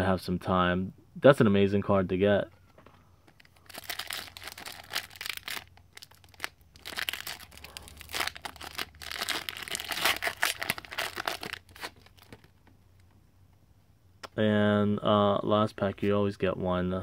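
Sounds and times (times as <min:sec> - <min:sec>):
foil wrapper tearing and crinkling: 0:03.4 - 0:12.4.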